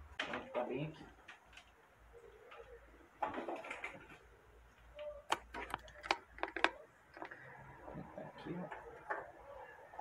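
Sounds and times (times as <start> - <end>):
plastic clicks and knocks: 5.3 - 7.4.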